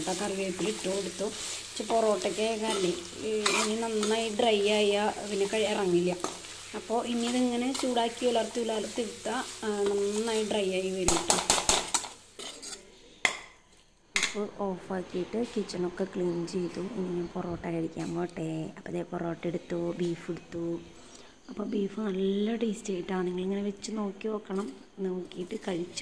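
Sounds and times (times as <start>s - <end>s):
meat sizzling in a steel pan: 0.0s - 12.8s
spoon scraping a pan: 0.0s - 14.3s
sharp taps against a pan: 11.1s - 12.1s, 13.2s - 13.6s.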